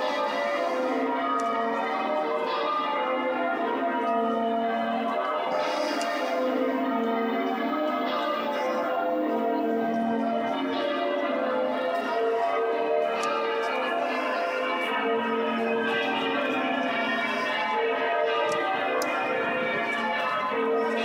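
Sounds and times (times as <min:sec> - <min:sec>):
church bells pealing: 0:00.0 - 0:21.0.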